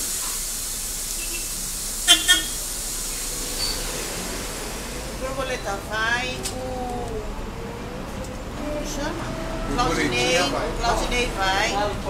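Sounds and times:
city bus running: 0.0 - 12.0
short horn toots: 1.2 - 2.6.

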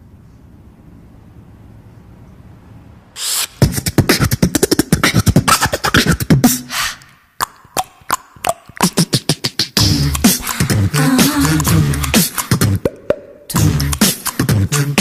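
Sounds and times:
faint hum: 0.0 - 15.0
beatboxing: 3.2 - 15.0.

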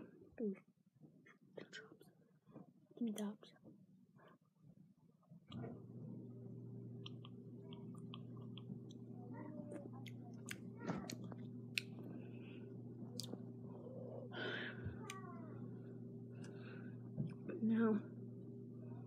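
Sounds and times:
steady low hum: 5.4 - 19.0
lip smacks and tongue clicks: 7.0 - 9.0, 10.0 - 12.0, 13.1 - 13.4.

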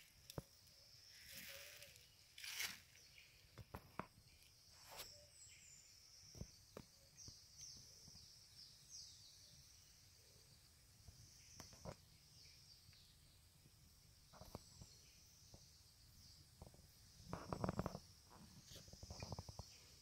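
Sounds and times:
high insect drone: 9.2 - 20.0.

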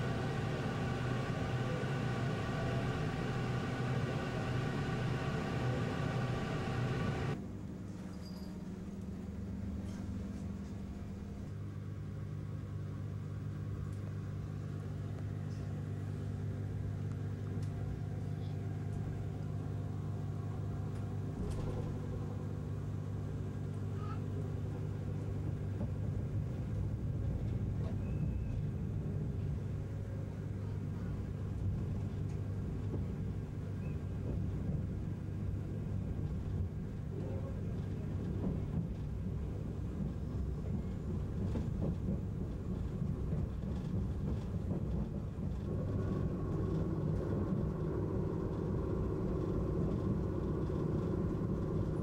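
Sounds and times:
train rumble: 0.0 - 7.4, 15.8 - 52.0
train electrical hum: 0.0 - 52.0.

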